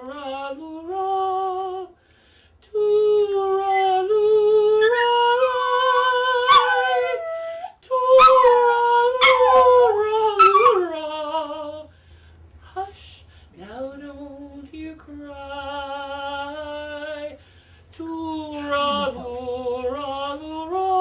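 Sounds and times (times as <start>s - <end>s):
person singing a lullaby: 0.0s - 2.0s, 2.6s - 11.9s, 12.6s - 21.0s
dog howling: 4.8s - 11.0s, 18.6s - 20.0s.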